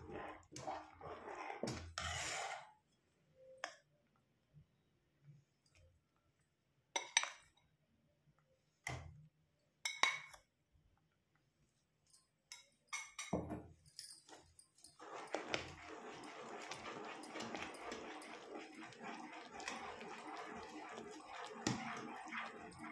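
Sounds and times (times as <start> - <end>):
spoon scraping and stirring: 0.0 - 3.0, 14.1 - 22.9
steel spoon clinking pot: 13.9 - 22.9.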